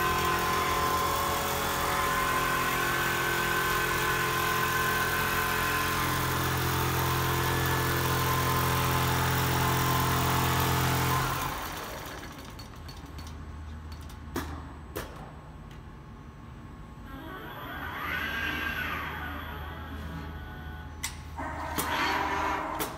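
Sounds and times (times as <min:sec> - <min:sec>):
quilting machine humming: 0:00.0 - 0:12.9.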